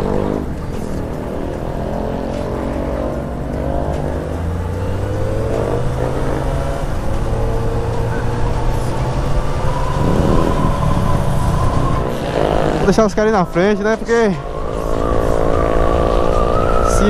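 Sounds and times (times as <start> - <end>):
motorcycle engine revving: 0.0 - 17.0
wind rushing: 5.5 - 17.0.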